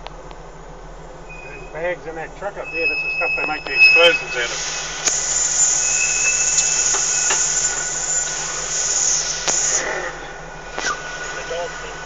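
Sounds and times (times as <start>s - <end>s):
truck engine hum: 0.0s - 12.0s
steady high hiss: 1.2s - 12.0s.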